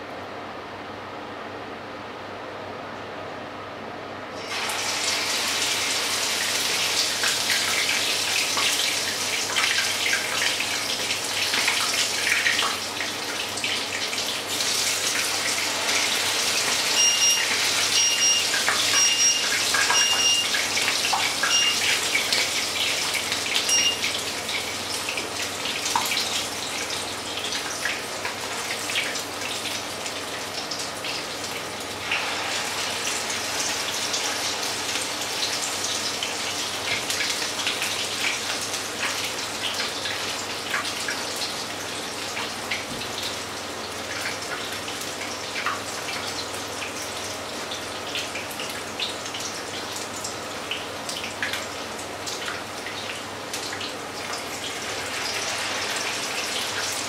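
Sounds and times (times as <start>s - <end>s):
batter sizzling in hot oil: 4.4s - 50.8s, 51.7s - 57.0s
high electronic beeps: 17.0s - 17.4s, 18.0s - 20.5s, 21.5s - 21.8s, 23.7s - 24.0s.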